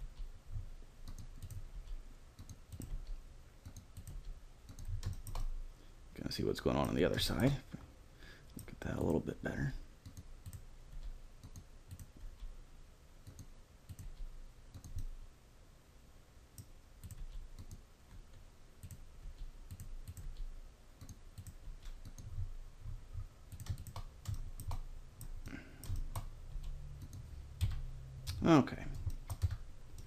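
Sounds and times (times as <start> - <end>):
keyboard and mouse clicks: 1.0 - 5.5, 10.0 - 12.6, 13.2 - 15.1, 16.6 - 22.5, 23.5 - 30.0.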